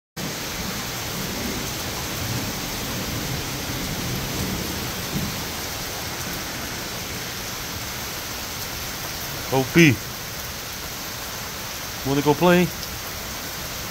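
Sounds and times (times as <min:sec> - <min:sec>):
low rumble of thunder: 0:00.2 - 0:07.9
heavy rain on wooden porch: 0:00.2 - 0:13.9.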